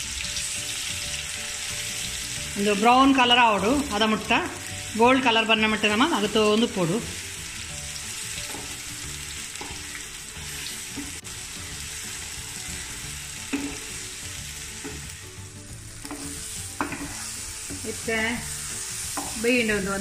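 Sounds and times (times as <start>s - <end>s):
paste sizzling in a pan: 0.0s - 20.0s
spatula scraping a pan: 16.0s - 19.4s.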